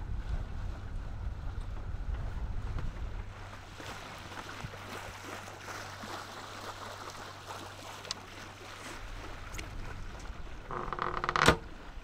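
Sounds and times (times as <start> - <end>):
water lapping against a hull: 0.0 - 12.0.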